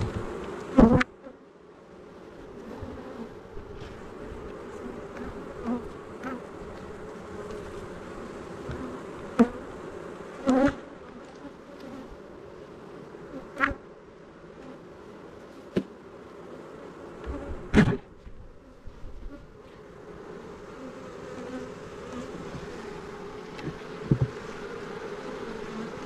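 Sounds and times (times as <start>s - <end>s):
bees buzzing: 0.0s - 26.0s.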